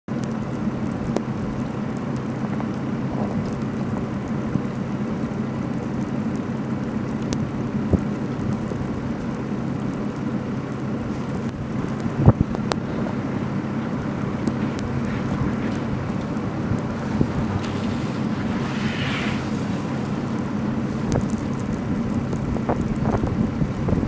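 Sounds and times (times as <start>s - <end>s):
car engine idling: 0.1s - 24.0s
constant hiss: 0.1s - 24.0s
faint clicks: 14.4s - 20.4s, 21.0s - 23.2s.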